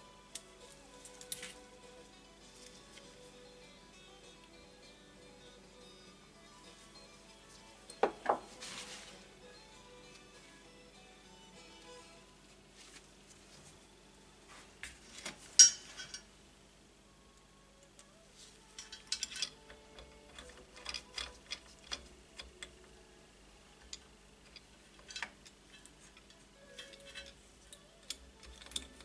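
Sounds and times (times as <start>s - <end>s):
metal parts clicking and knocking: 15.6s - 16.3s, 18.7s - 22.9s, 23.8s - 29.0s.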